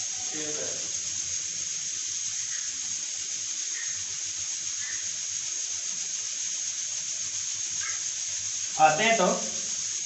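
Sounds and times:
pressure cooker hissing: 0.0 - 10.0.

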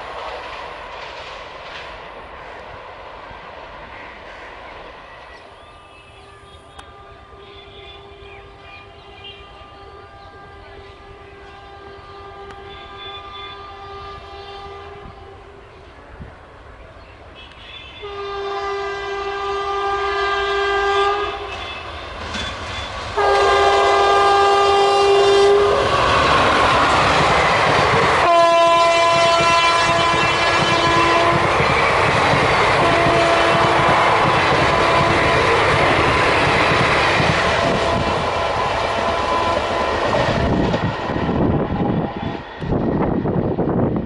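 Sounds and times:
train coaches clattering on rails: 0.0 - 5.5, 21.3 - 43.4
train air horn blasts: 6.0 - 15.9, 17.4 - 22.1, 23.2 - 26.6, 28.2 - 31.6, 32.6 - 36.4, 37.4 - 42.2.

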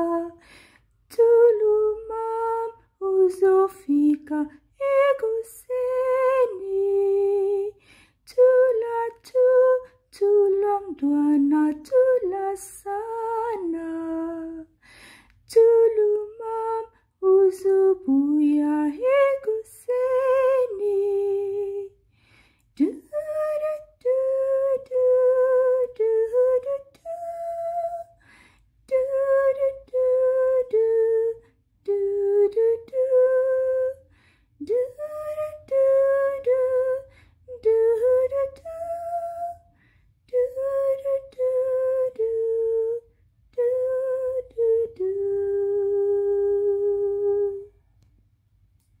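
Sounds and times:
woman breathing: 0.4 - 1.1, 7.8 - 8.3, 14.7 - 15.5, 22.0 - 22.8, 28.1 - 28.8, 34.0 - 34.6, 37.1 - 37.5, 39.6 - 40.2.

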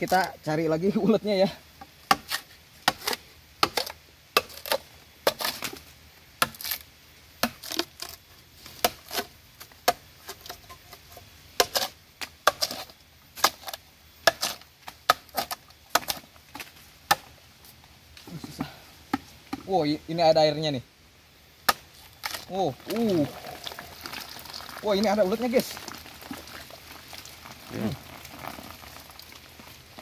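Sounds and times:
machete chopping bamboo: 2.0 - 5.8, 6.4 - 6.8, 7.4 - 8.2, 8.8 - 10.6, 11.6 - 17.4, 21.6 - 23.2.

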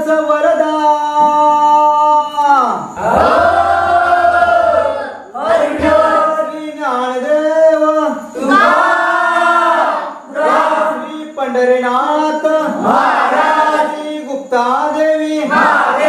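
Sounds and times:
men singing devotional song: 5.4 - 16.0.

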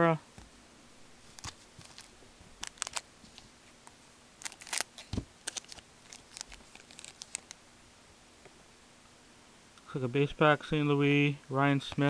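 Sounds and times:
wrapper tearing and crinkling: 1.3 - 3.1, 4.4 - 7.6.

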